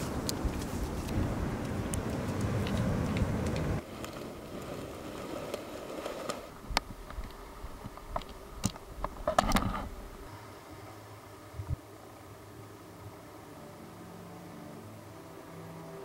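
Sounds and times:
bare feet on wooden boardwalk: 0.0s - 10.3s.

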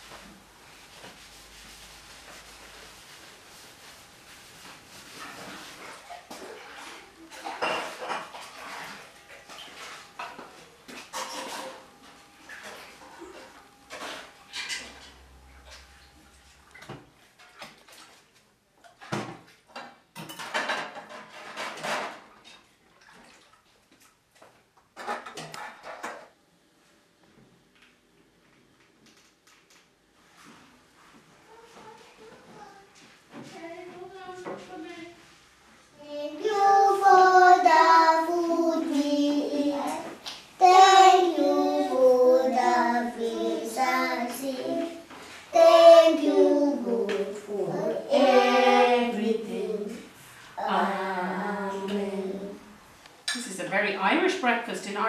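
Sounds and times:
metal pans clattering: 6.2s - 15.3s, 19.0s - 22.7s, 25.0s - 26.3s
young children singing: 36.0s - 52.8s.

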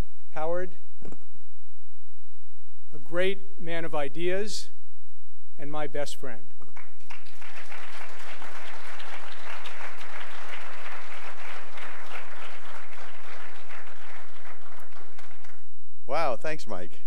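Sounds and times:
audience applauding: 6.8s - 15.6s.

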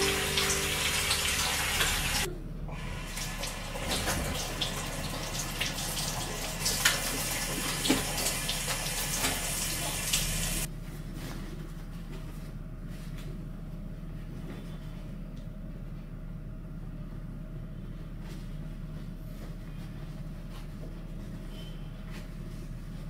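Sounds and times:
tap water running into sink: 0.0s - 10.7s.

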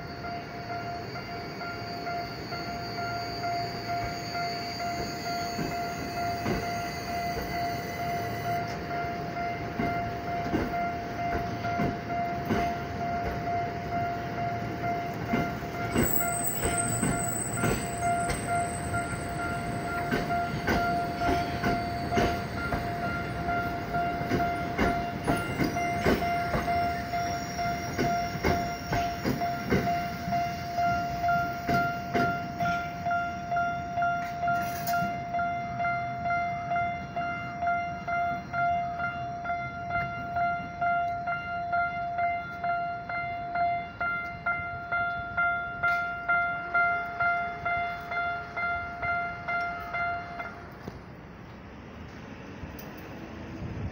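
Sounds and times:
level crossing alarm ringing: 0.0s - 50.6s
train wheels clacking on rail joints: 4.8s - 33.1s.

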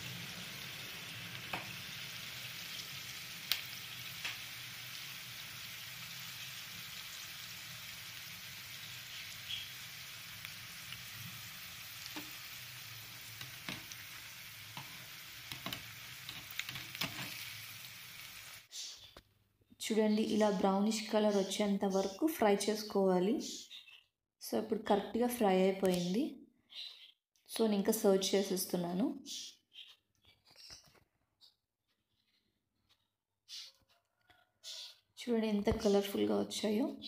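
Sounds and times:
deep-frying sizzle: 0.0s - 18.7s.

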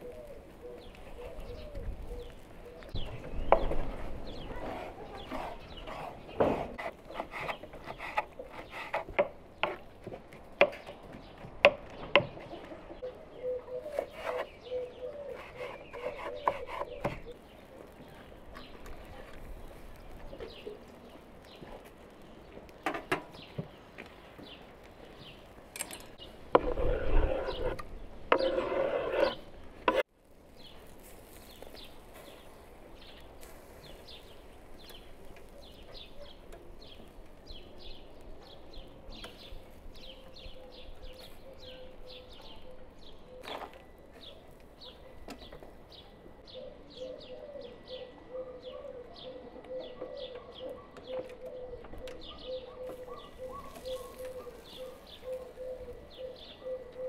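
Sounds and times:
scraping noise: 26.5s - 30.0s.

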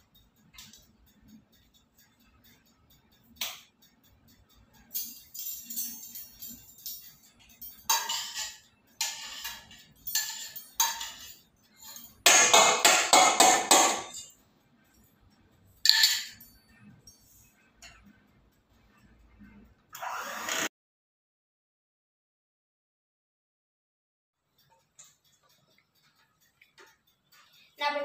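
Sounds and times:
metal utensils clinking in bowls: 4.7s - 15.1s, 15.8s - 18.0s.

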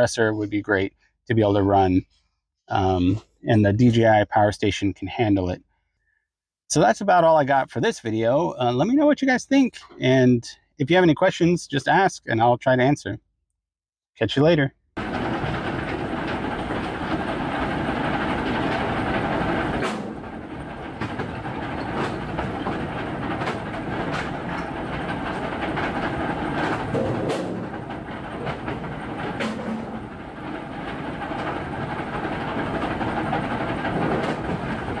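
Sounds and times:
clanks and bangs on steel hopper: 15.0s - 35.0s
heavy machinery running: 15.0s - 35.0s.

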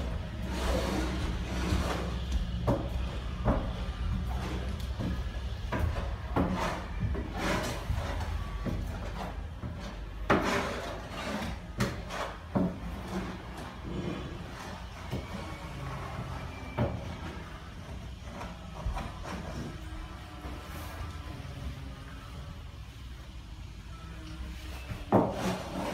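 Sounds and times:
trowel scraping floor: 0.0s - 21.7s, 24.5s - 25.9s.

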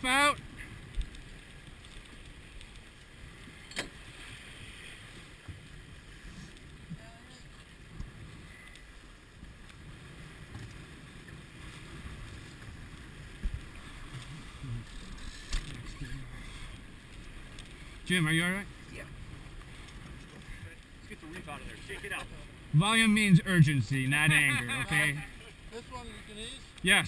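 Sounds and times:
wind and water rushing: 0.0s - 27.0s.

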